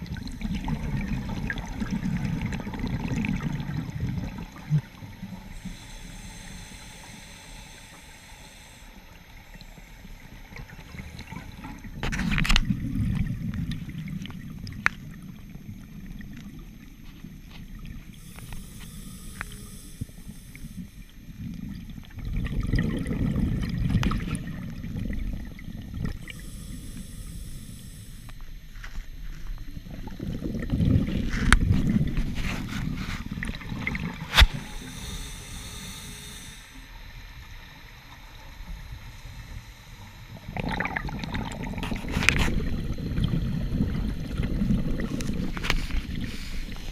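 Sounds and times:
bubbling exhaled air: 0:00.0 - 0:15.2, 0:17.8 - 0:28.4, 0:29.9 - 0:37.2, 0:38.8 - 0:46.9
regulator hissing inhalations: 0:05.5 - 0:11.9, 0:18.1 - 0:21.1, 0:26.1 - 0:28.4, 0:32.2 - 0:37.0, 0:45.1 - 0:46.9.

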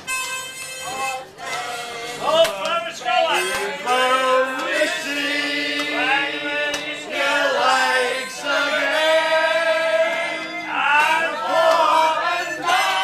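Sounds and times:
harmonica: 0:00.0 - 0:02.5, 0:07.2 - 0:10.8
group singing in chorus: 0:03.3 - 0:13.0.

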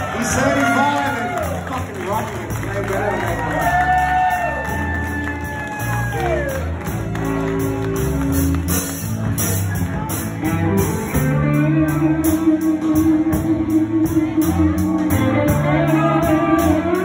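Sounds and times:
blues band playing: 0:00.0 - 0:17.0
electric bass guitar: 0:00.0 - 0:17.0
drum kit cymbal beat: 0:07.6 - 0:17.0.

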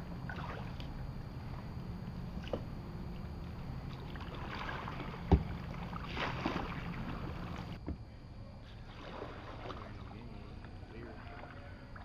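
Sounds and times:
kayak paddle splashing: 0:00.2 - 0:07.9, 0:08.6 - 0:12.0.

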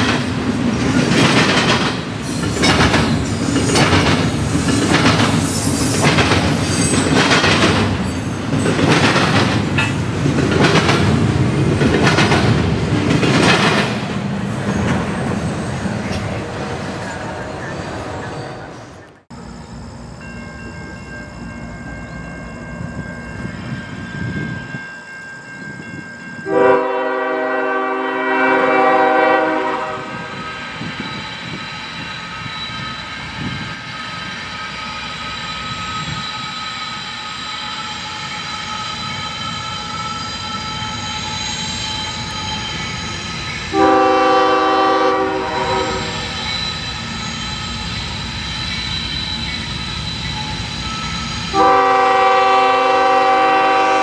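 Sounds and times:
train rumble: 0:00.0 - 0:54.0
train air horn blasts: 0:26.4 - 0:30.6, 0:43.7 - 0:46.4, 0:51.5 - 0:54.0.

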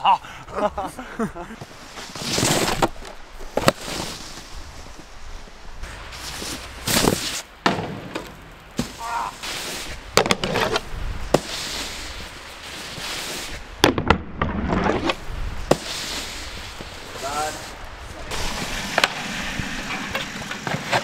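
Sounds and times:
snowboard scraping on snow: 0:01.6 - 0:13.8, 0:14.6 - 0:21.0
snowboard knocking on snow: 0:06.2 - 0:17.5.

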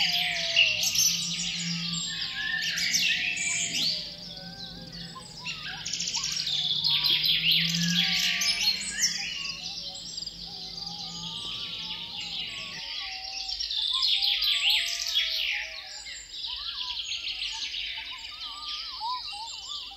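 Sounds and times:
faint low hum: 0:00.0 - 0:13.6
songbirds chirping and trilling: 0:00.0 - 0:19.9.

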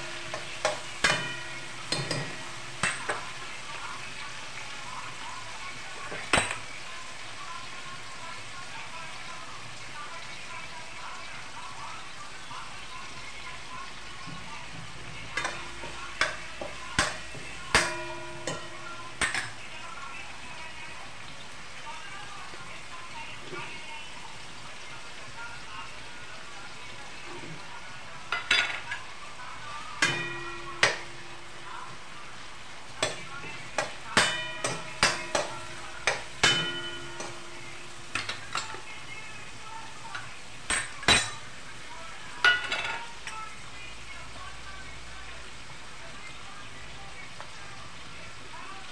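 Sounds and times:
metal spatula clanking on pan: 0:00.0 - 0:04.0, 0:06.1 - 0:06.8, 0:14.8 - 0:19.7, 0:28.3 - 0:29.1, 0:30.0 - 0:31.7, 0:33.0 - 0:39.0, 0:40.0 - 0:41.6, 0:42.4 - 0:43.4
faint sizzle of frying: 0:00.0 - 0:48.9.

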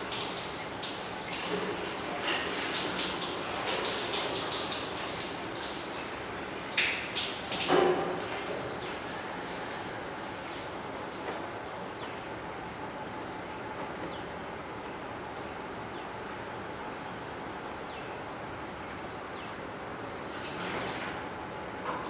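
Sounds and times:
high insect drone: 0:00.0 - 0:22.0.

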